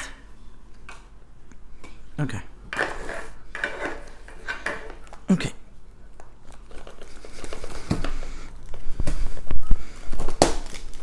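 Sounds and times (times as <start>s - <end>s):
plastic and cardboard rustling: 6.2s - 11.0s.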